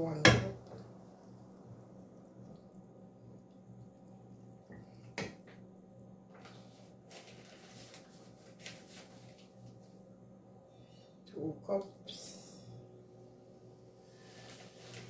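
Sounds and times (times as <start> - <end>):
steady low hum: 0.0 - 15.0
soft scraping rustles: 6.3 - 10.0, 14.0 - 15.0.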